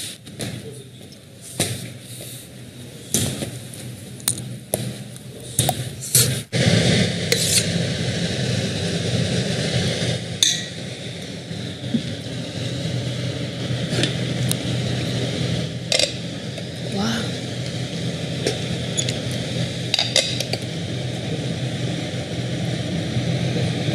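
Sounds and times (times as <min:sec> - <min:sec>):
low hum with rushing noise: 0:00.0 - 0:23.9.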